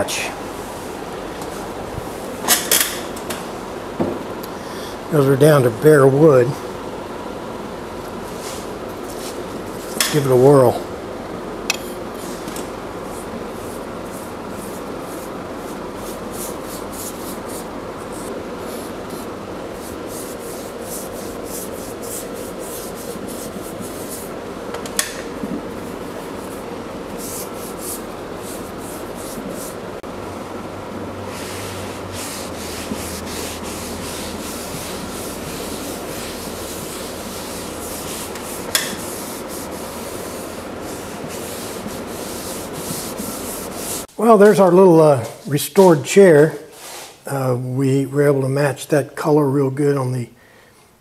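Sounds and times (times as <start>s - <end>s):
steady hum: 0.0s - 51.0s
brush scrubbing wood: 13.0s - 24.4s, 25.3s - 30.0s, 31.3s - 44.1s
rag rubbing wood: 13.1s - 24.4s, 25.3s - 29.9s, 31.3s - 44.1s.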